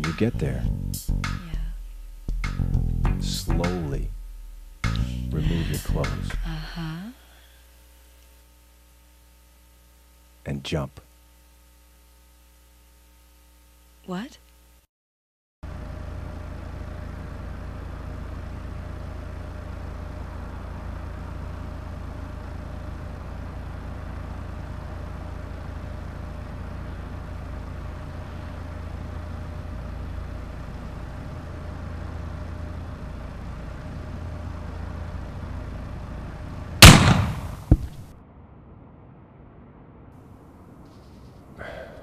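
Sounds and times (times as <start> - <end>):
low rumble with faint hum: 0.0 - 14.8, 15.6 - 42.0
loud sudden crash: 36.8 - 41.7.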